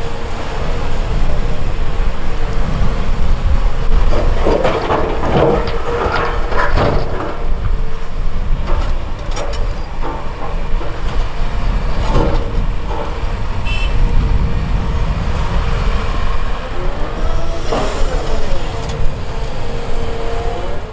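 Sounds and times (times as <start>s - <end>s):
diesel engine under load: 0.0s - 20.9s.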